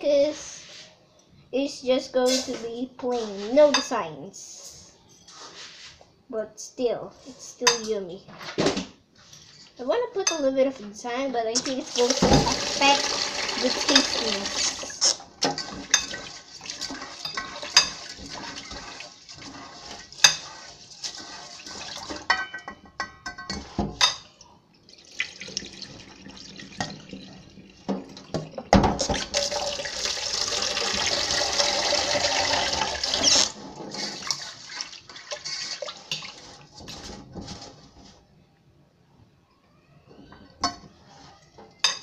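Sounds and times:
forks clicking and scraping bowl: 15.0s - 24.2s.

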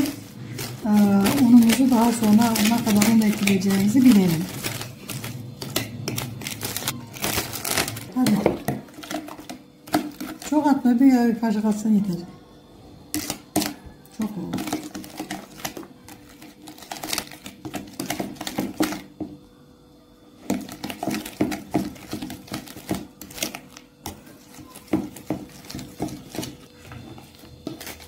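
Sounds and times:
spoon scraping plastic bowl: 0.0s - 7.0s, 7.8s - 10.7s, 14.5s - 19.3s, 20.4s - 28.0s.

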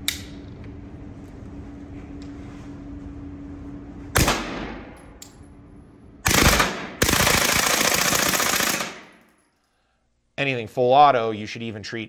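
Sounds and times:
suppressed gunfire bursts: 6.2s - 9.1s.

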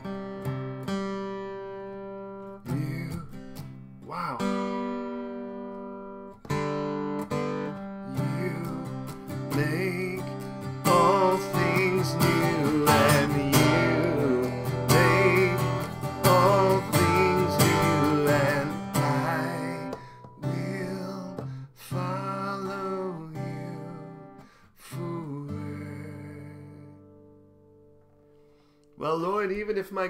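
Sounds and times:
acoustic guitar strumming: 0.0s - 29.6s
man singing worship song: 2.7s - 3.4s, 8.1s - 26.9s.

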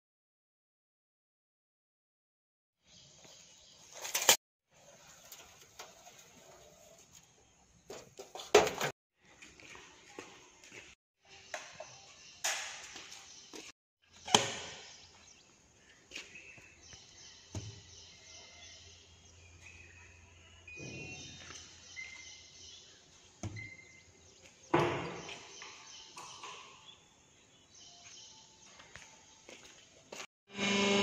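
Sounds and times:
knocks and clunks: 24.7s - 26.7s.

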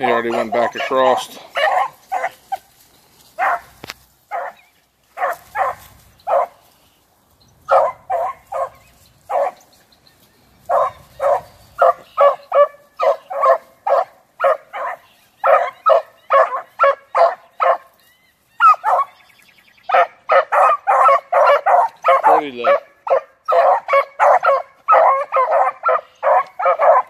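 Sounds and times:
dogs barking: 0.0s - 6.7s, 7.7s - 9.7s, 10.6s - 18.0s, 18.6s - 19.2s, 19.9s - 27.0s.

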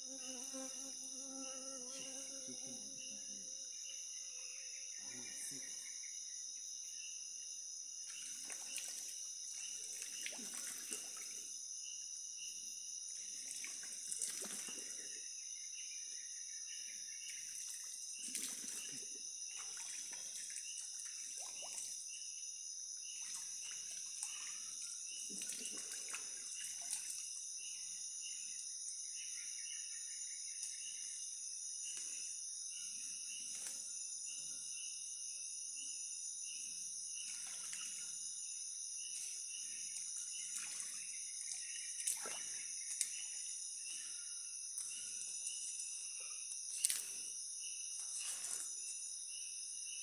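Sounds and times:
insects droning: 0.0s - 50.0s
splashing in a muddy stream: 8.1s - 11.5s, 13.2s - 15.2s, 17.3s - 22.0s, 23.0s - 27.4s, 37.2s - 38.2s, 39.0s - 43.5s, 46.7s - 47.3s, 48.0s - 48.9s.

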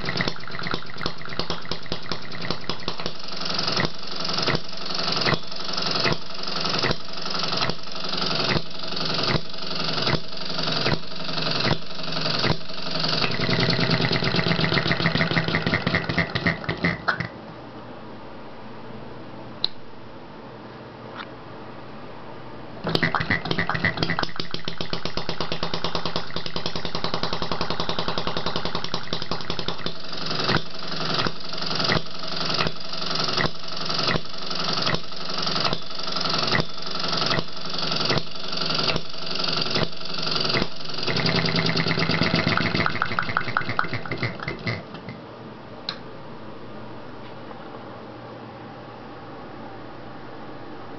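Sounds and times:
small engine firing pops: 0.0s - 17.3s, 22.8s - 44.8s.

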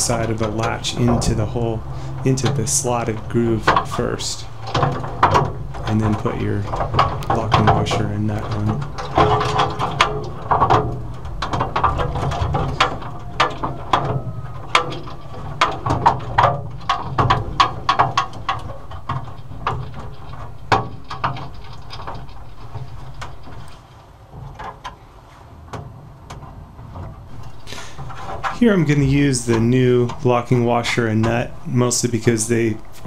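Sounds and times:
metal lock parts clicking: 0.0s - 23.9s.

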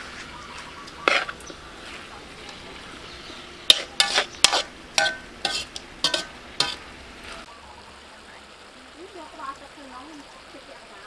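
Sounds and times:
metal spatula scraping a wok: 0.8s - 3.0s, 3.6s - 7.5s.

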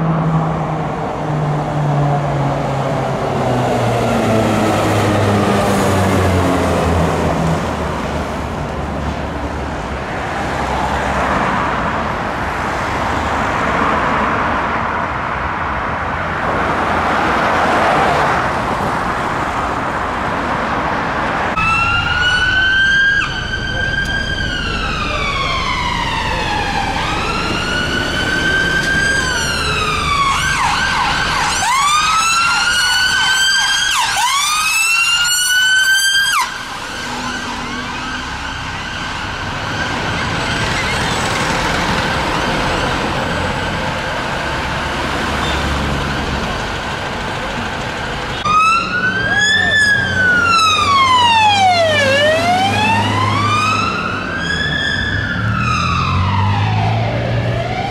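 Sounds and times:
city traffic noise: 0.0s - 57.9s
ambulance siren wailing and yelping: 21.6s - 44.7s, 48.4s - 57.9s.

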